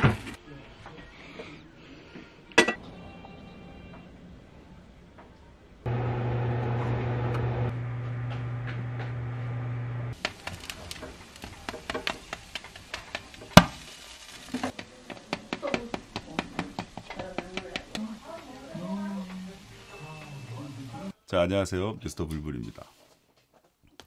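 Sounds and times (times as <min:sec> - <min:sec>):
oven humming: 0:05.9 - 0:14.2
roast pork crackling: 0:10.1 - 0:21.1.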